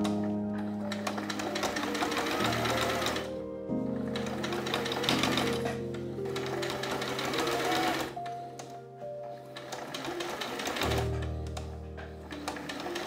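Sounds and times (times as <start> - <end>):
sewing machine stitching: 0.0 - 3.3, 4.1 - 8.2, 9.4 - 11.3, 12.0 - 13.0
background music: 0.0 - 13.0.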